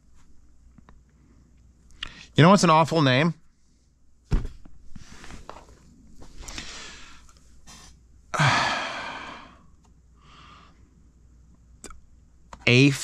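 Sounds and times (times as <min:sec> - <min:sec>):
soft breaths: 0:04.9 - 0:11.1
man sighing heavily: 0:08.3 - 0:09.7.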